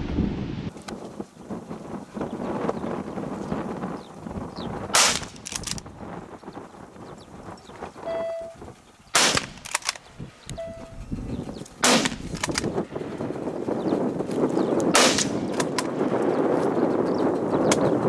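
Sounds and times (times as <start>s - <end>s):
loud gunshots: 4.9s - 5.6s, 9.1s - 9.9s, 11.8s - 12.7s, 14.9s - 15.7s.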